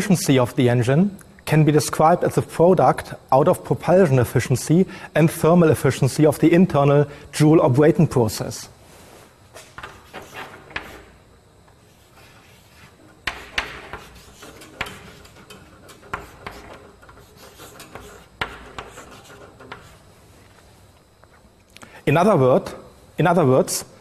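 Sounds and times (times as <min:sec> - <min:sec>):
chalk scratching on chalkboard: 0:09.6 - 0:11.2, 0:11.8 - 0:20.1.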